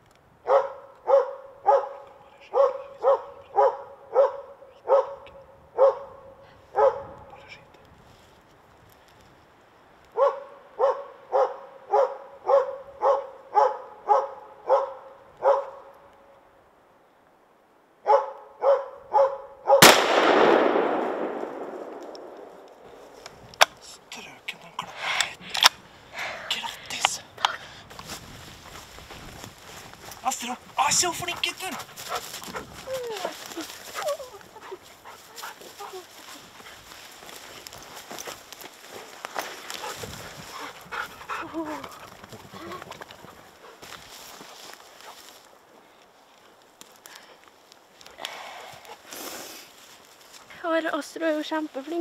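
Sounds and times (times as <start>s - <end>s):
dog barking sharply: 0.5s - 6.2s, 6.8s - 7.1s, 10.2s - 15.9s, 18.1s - 19.8s
rifle shot echoing: 19.8s - 23.0s.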